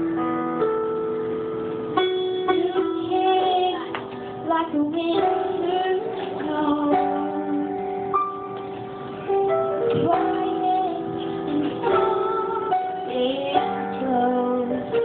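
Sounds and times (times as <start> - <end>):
keyboard playing: 0.0 - 15.0
woman singing: 2.4 - 8.2, 9.9 - 15.0.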